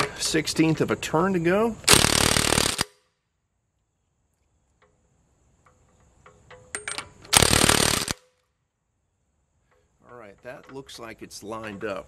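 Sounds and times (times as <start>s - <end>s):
impact wrench hammering: 1.9s - 2.9s, 6.5s - 8.3s.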